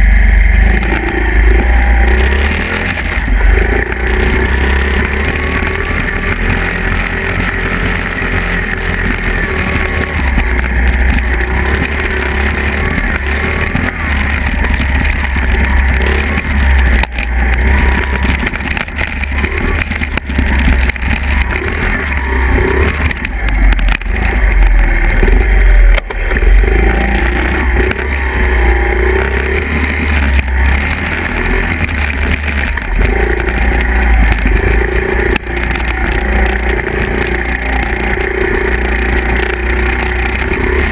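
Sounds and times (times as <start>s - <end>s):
dirt bike engines: 0.0s - 40.9s.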